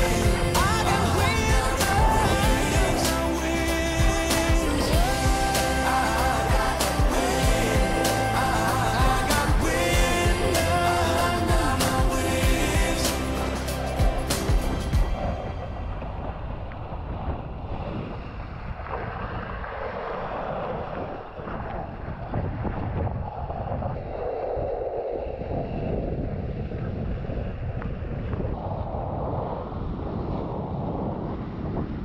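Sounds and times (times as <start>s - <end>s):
wind buffeting microphone: 0.0s - 5.5s, 11.6s - 32.0s
water rushing and splashing: 0.0s - 22.2s.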